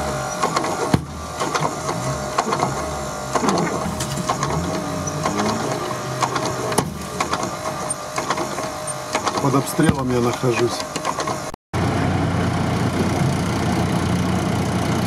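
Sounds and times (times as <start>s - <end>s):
snow and mud pelting car body: 0.0s - 11.5s.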